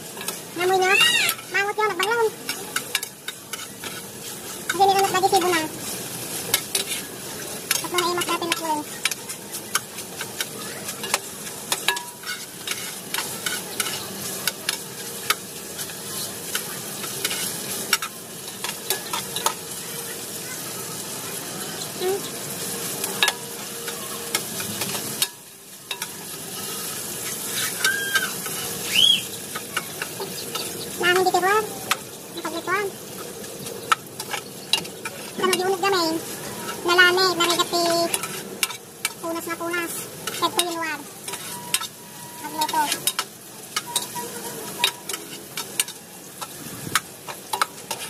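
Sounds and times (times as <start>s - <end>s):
food sizzling: 0.0s - 48.0s
spatula scraping a pot: 6.5s - 7.1s, 11.9s - 14.1s, 40.3s - 41.9s.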